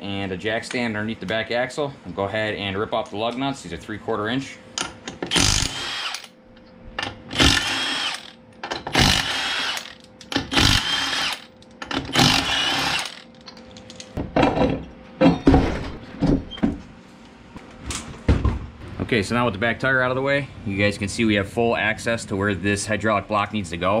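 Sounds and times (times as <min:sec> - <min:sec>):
impact wrench hammering: 0:04.8 - 0:06.3, 0:07.0 - 0:13.3.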